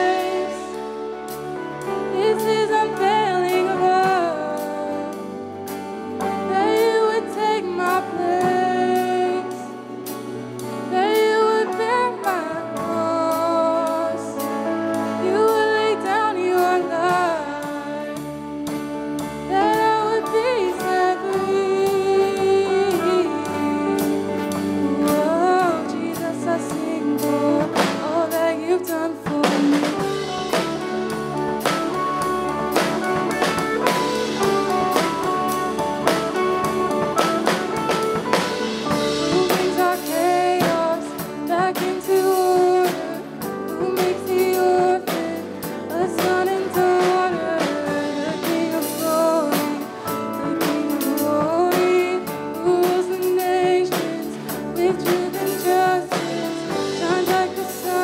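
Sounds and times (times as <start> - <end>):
worship song singing with band: 0.0 - 18.8, 19.4 - 58.0
drum kit beat: 0.0 - 58.0.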